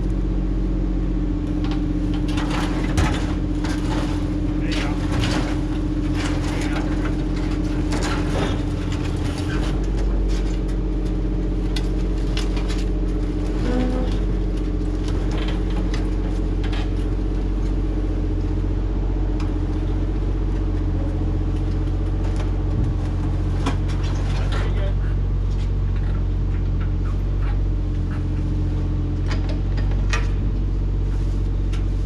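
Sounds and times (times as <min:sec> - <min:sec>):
excavator diesel engine running: 0:00.0 - 0:32.0
knocks and clanks: 0:01.6 - 0:10.8.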